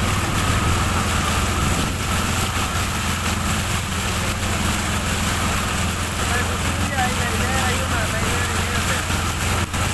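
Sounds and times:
auto-rickshaw engine running: 0.0 - 9.9
water splashing around wheels: 0.0 - 9.9.

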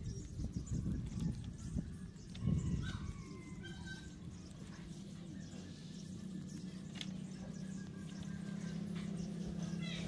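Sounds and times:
low hum: 0.0 - 10.0
rabbits chewing leaves: 0.0 - 10.0.

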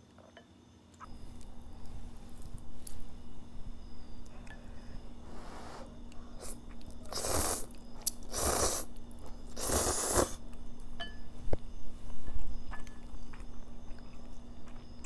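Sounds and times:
noodles being slurped: 6.4 - 10.4.

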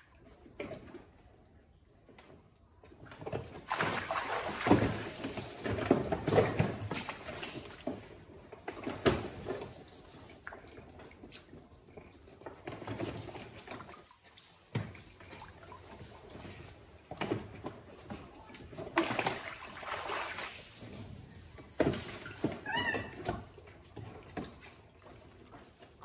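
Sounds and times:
water splashing and trickling: 2.8 - 26.0.

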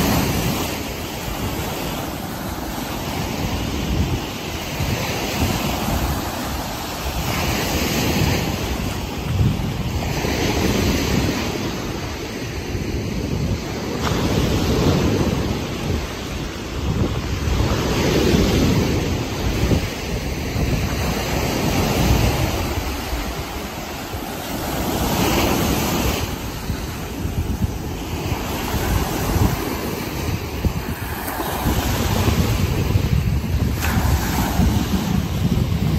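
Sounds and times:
surf washing up on beach: 0.0 - 35.9
wind buffeting microphone: 0.0 - 35.9.

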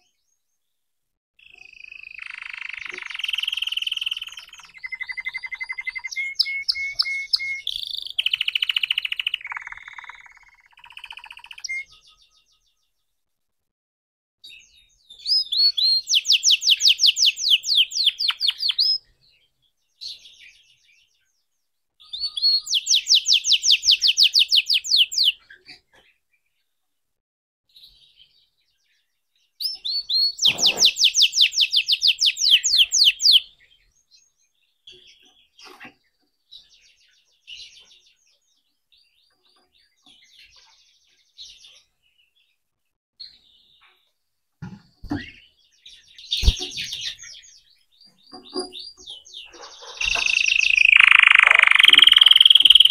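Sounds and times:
canary singing trills: 1.4 - 12.9, 14.6 - 19.3, 22.0 - 26.1, 29.6 - 34.3, 45.0 - 52.9
bird twittering: 1.6 - 11.9, 15.3 - 19.0, 22.2 - 25.4, 29.8 - 33.5, 46.2 - 47.6, 48.3 - 52.9.

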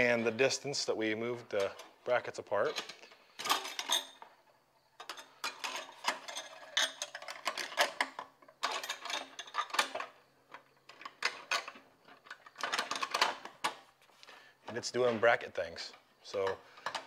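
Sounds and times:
metal brackets clicking and rattling: 2.6 - 4.4, 5.0 - 13.9.

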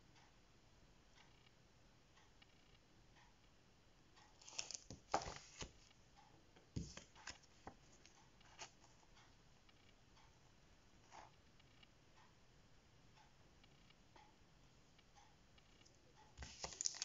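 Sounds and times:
plastic sheets crackling and rustling: 4.4 - 5.9, 16.4 - 17.0.

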